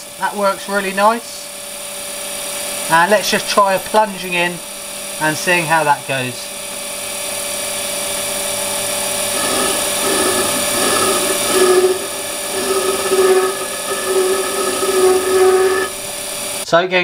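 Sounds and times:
lathe motor whine: 0.0s - 16.7s
ringing tool chatter: 9.3s - 16.1s.

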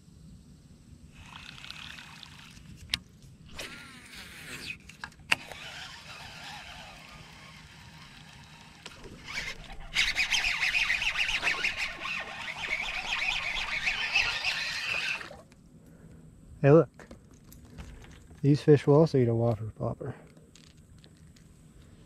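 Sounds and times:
fishing reel whirring: 1.1s - 15.5s
fishing cast swish and click: 2.8s - 15.5s.

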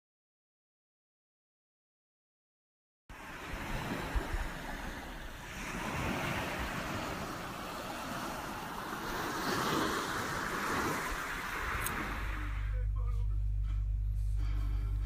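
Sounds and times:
surf washing on shore: 3.1s - 12.7s
wind buffeting microphone: 3.4s - 12.6s.

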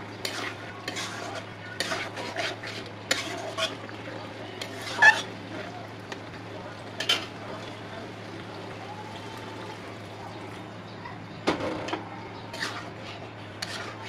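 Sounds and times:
spatula scraping through pot: 0.0s - 5.4s, 7.0s - 7.4s, 12.3s - 14.0s
food simmering hiss: 0.0s - 10.7s.

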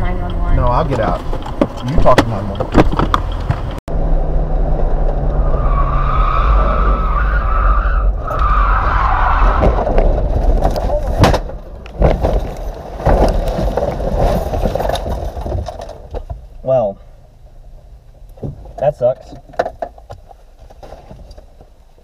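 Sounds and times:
knocks and scraping: 0.0s - 3.8s, 8.1s - 16.6s, 17.7s - 22.0s
tires squealing: 5.0s - 10.7s
car crash impact: 8.2s - 16.4s.

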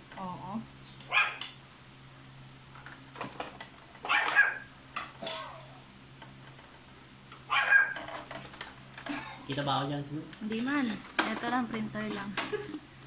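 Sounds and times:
dog barking: 1.1s - 1.4s, 4.0s - 4.7s, 7.5s - 8.0s.

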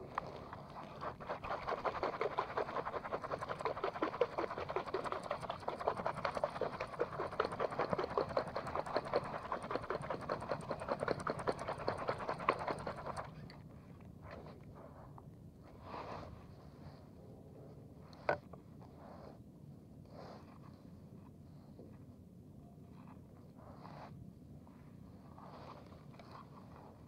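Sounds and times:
spinning reel ticking and whirring: 1.7s - 13.4s.

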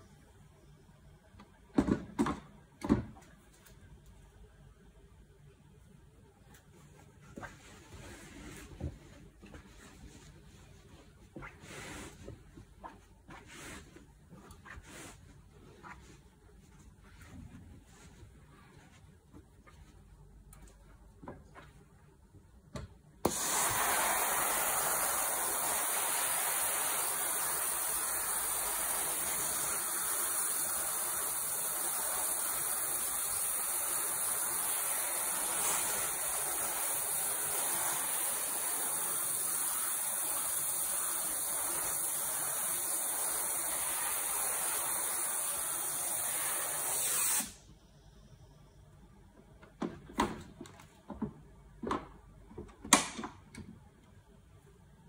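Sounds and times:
steam iron hissing: 23.2s - 47.6s.

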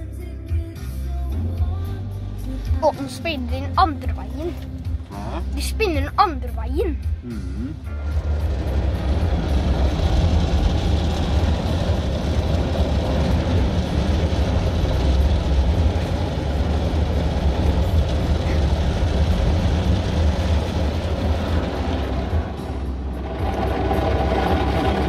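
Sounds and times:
car wash brushes rumbling: 7.8s - 25.0s.

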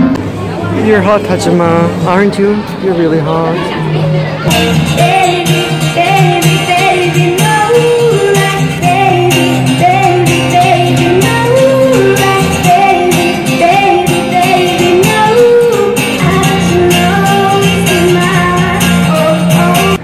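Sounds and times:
acoustic guitar: 0.0s - 20.0s
woman singing into microphone: 4.7s - 20.0s.

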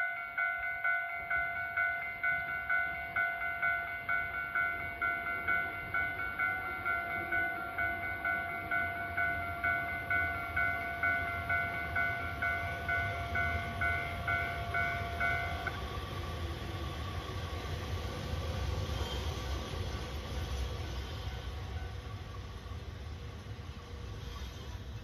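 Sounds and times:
electronic warning bell ringing: 0.0s - 15.7s
train wheels rumbling on rail: 3.6s - 25.0s.

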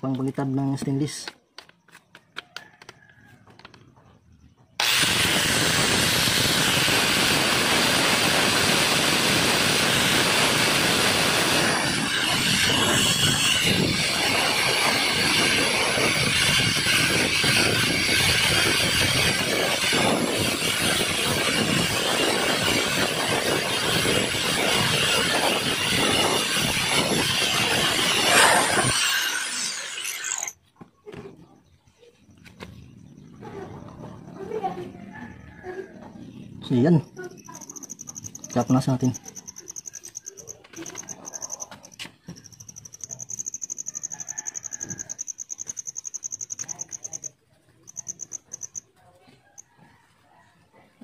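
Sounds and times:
angle grinder buffing metal: 4.8s - 30.6s.

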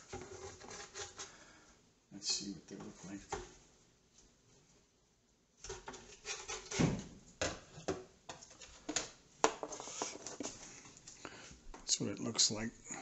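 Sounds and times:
spatula scraping skillet: 0.0s - 1.4s, 5.7s - 6.9s, 9.6s - 10.7s.

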